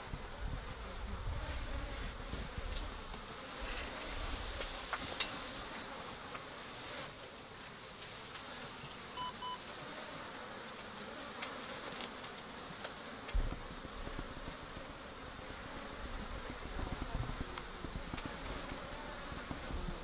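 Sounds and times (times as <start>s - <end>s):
insects buzzing: 0.0s - 20.0s
short electronic beeps: 9.2s - 9.6s.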